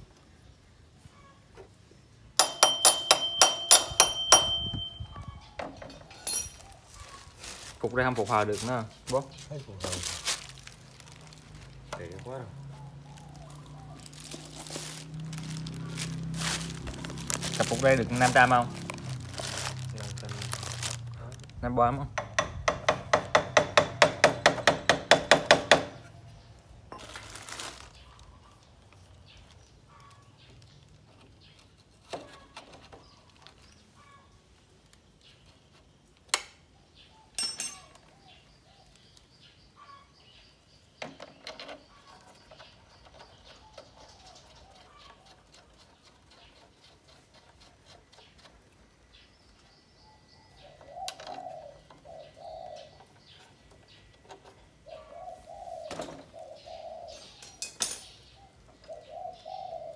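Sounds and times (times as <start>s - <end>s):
metal tubes knocking and clicking: 2.4s - 4.9s, 22.1s - 26.0s
pigeon cooing: 43.3s - 46.9s, 50.4s - 53.4s, 54.8s - 57.4s, 58.3s - 59.9s.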